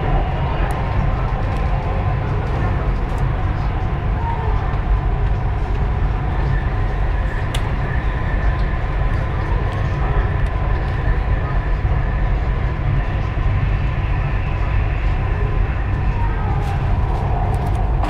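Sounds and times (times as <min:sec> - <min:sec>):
train rumble with faint whine: 0:00.0 - 0:18.0.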